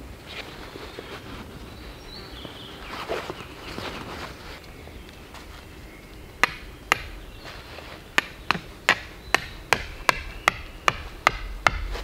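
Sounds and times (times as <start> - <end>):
stake being hammered into ground: 6.4 - 7.2, 8.2 - 12.0.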